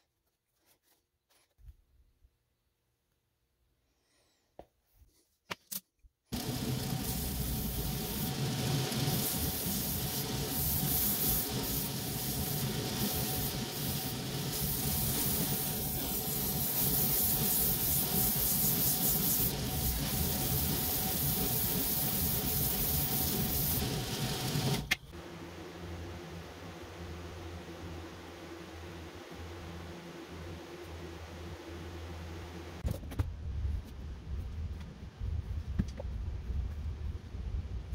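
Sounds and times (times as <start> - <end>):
abrasive grinding hiss: 6.4 - 24.9.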